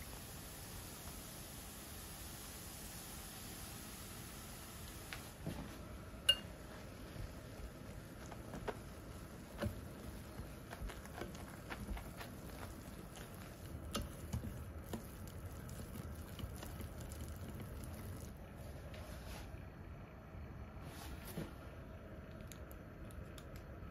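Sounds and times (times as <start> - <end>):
wet batter mixing: 6.7 - 19.0.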